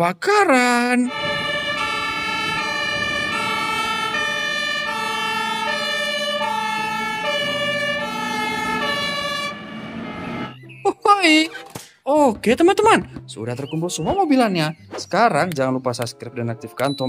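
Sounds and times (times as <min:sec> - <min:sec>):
fire engine two-tone siren: 0:01.0 - 0:10.8
truck engine rumble: 0:01.0 - 0:10.8.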